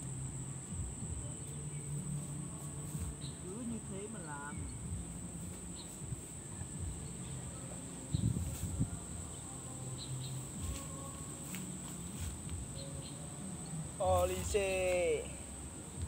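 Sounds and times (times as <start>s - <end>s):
soft low thumps: 0.0s - 2.0s, 4.6s - 7.3s, 8.0s - 9.3s, 10.5s - 13.0s
insect chorus drone: 0.0s - 16.0s
low outdoor rumble: 0.0s - 16.0s.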